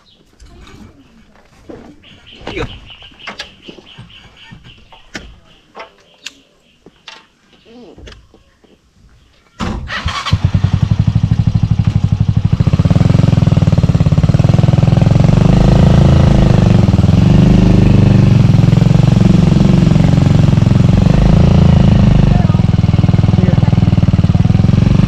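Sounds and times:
motorcycle engine starting and running: 0:09.6 - 0:25.0.

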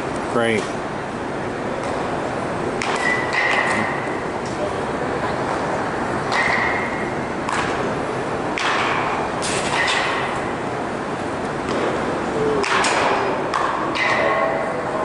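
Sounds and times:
baseball bats striking balls: 0:01.7 - 0:04.4, 0:06.2 - 0:10.6, 0:11.6 - 0:14.8.

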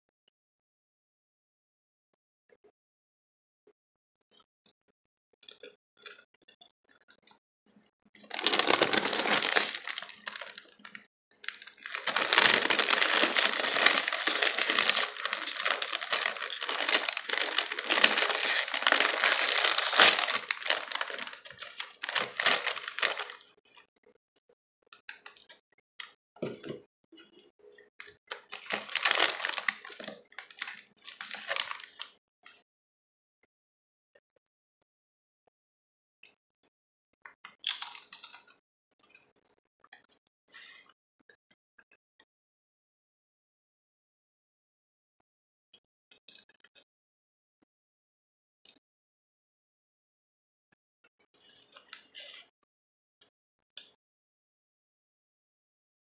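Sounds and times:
potato chips crunching: 0:08.2 - 0:23.4, 0:28.2 - 0:32.1, 0:37.6 - 0:38.5
foil snack bags crinkling: 0:08.2 - 0:23.5, 0:28.3 - 0:32.1.

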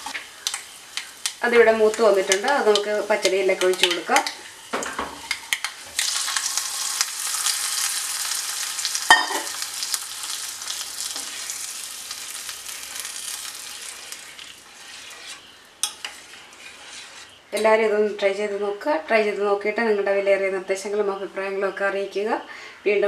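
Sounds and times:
hot oil sizzling: 0:00.0 - 0:17.4.

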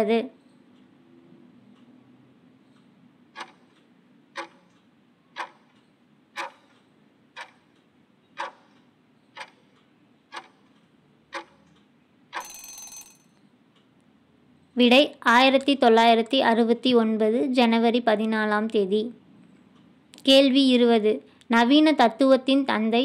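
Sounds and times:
clock ticking: 0:02.6 - 0:13.9.

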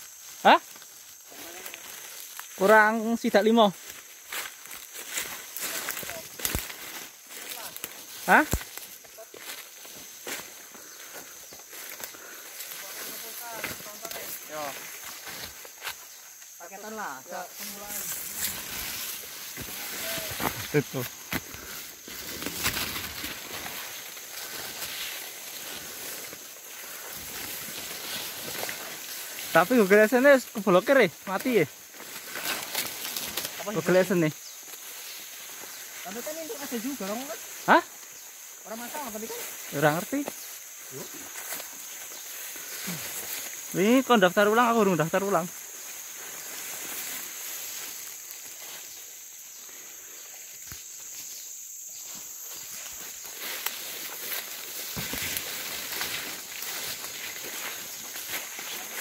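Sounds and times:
footsteps crunching: 0:00.0 - 0:16.6, 0:17.4 - 0:43.9, 0:50.6 - 0:59.0
high-pitched hiss: 0:00.0 - 0:59.0
insects droning: 0:00.0 - 0:59.0
leaves and branches rustling: 0:00.0 - 0:59.0
branches snapping: 0:04.7 - 0:09.1, 0:21.2 - 0:23.7, 0:31.9 - 0:33.6.

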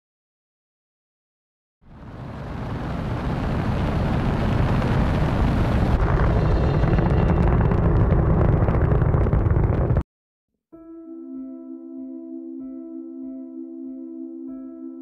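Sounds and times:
rocket engines rumbling: 0:01.9 - 0:10.0.

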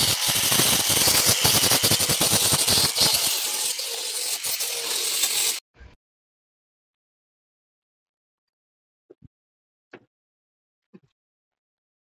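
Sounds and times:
angle grinder grinding metal: 0:00.0 - 0:05.6
grinding disc chattering: 0:00.0 - 0:05.6.

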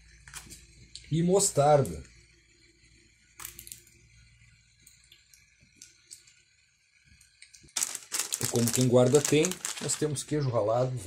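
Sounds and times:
plastic sachet crackling: 0:03.4 - 0:03.9, 0:07.4 - 0:10.4.

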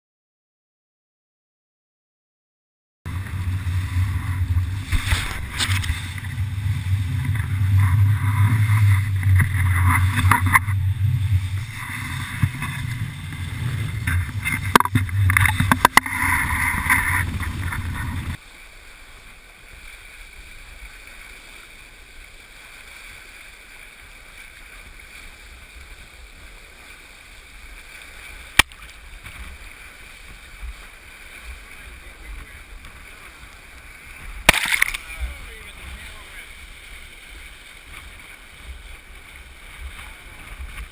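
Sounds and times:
wind buffeting microphone: 0:03.1 - 0:18.4
rushing water: 0:03.1 - 0:40.9.

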